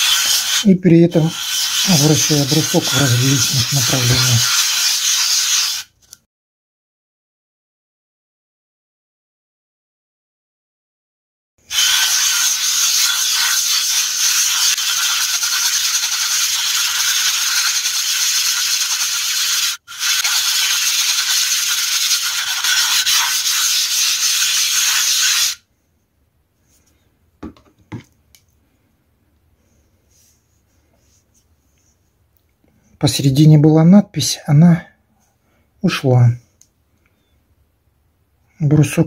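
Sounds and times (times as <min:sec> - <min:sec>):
stone scrubbing on plate: 0:00.0 - 0:00.6, 0:01.2 - 0:05.8, 0:11.7 - 0:25.6.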